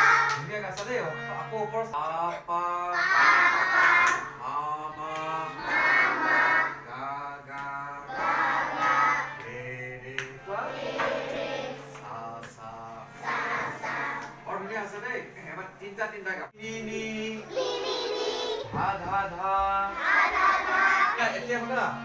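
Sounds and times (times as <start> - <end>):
children singing in chorus: 0.0 - 0.4, 2.9 - 4.4, 5.1 - 7.0, 8.1 - 9.4, 10.5 - 11.9, 13.2 - 14.4, 17.4 - 18.8, 19.8 - 21.4
harmonium drone: 0.0 - 17.7, 18.8 - 22.0.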